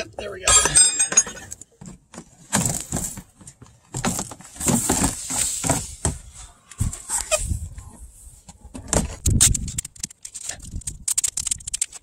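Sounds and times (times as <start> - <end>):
plastic shield scraping and clattering: 1.8 - 10.7.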